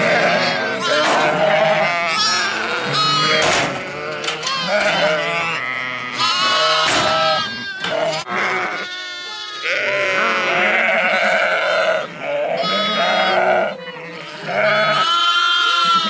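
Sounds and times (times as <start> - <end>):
sheep and lambs bleating: 0.0 - 16.0.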